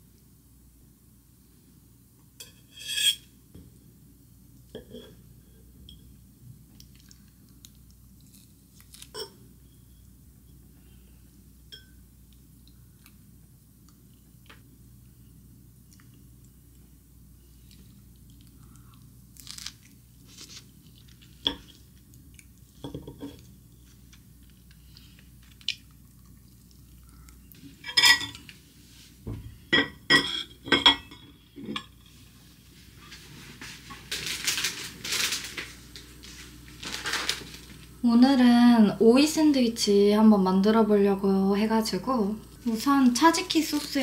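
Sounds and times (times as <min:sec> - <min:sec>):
cutlery scraping ceramic plates: 0:02.4 - 0:03.3, 0:29.8 - 0:32.0
plastic bag crinkling: 0:34.0 - 0:38.0, 0:42.6 - 0:44.0.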